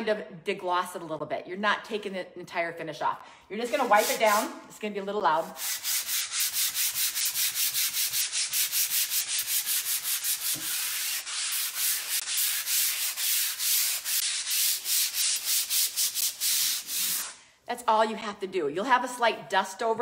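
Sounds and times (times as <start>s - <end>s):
sanding pad scrubbing wood: 3.7s - 4.5s, 5.6s - 17.3s.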